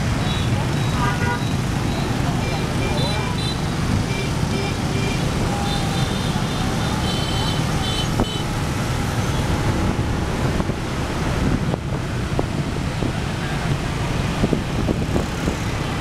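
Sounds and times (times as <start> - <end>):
motorbike and car traffic: 0.0 - 16.0
wind noise on microphone: 8.0 - 16.0.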